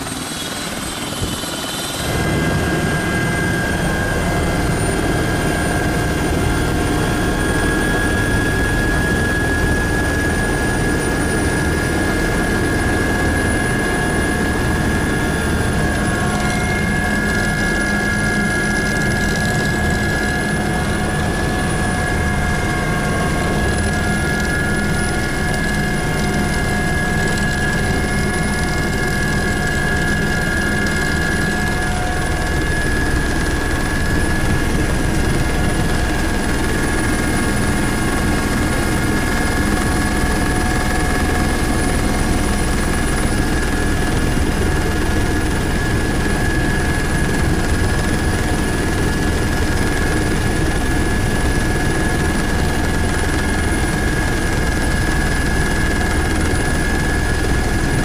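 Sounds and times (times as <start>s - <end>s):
helicopter engine and rotor drone: 0.0s - 58.0s.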